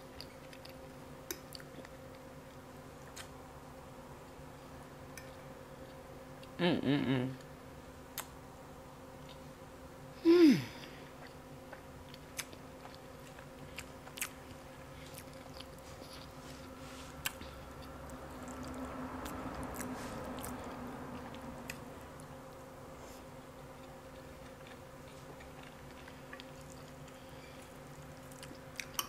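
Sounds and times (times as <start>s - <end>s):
close chewing and mouth sounds: 0.0s - 3.4s, 9.2s - 9.6s, 11.0s - 29.0s.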